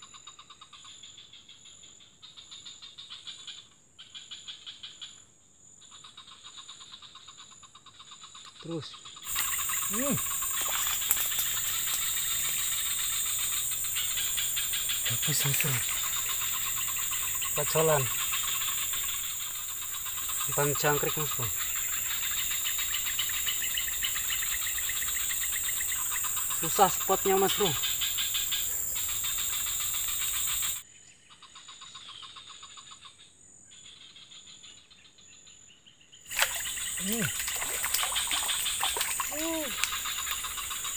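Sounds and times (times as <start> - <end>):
insects buzzing: 8.0 - 30.8, 36.2 - 40.9
bird-like call: 8.6 - 30.8, 36.3 - 40.9
person speaking a word: 9.9 - 10.2, 15.1 - 15.9, 17.6 - 18.1, 20.5 - 21.5, 26.6 - 27.8, 37.0 - 37.3, 39.3 - 39.8.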